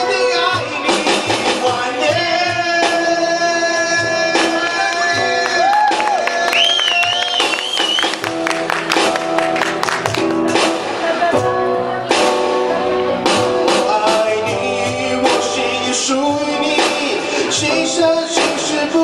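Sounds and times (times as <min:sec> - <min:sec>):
person singing: 0:00.0 - 0:07.2, 0:10.5 - 0:12.3, 0:13.5 - 0:19.0
guitar chords: 0:00.0 - 0:19.0.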